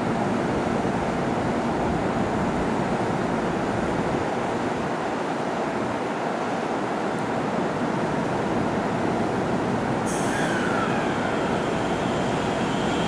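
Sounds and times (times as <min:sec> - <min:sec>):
standing electric train rushing noise: 0:08.8 - 0:13.0.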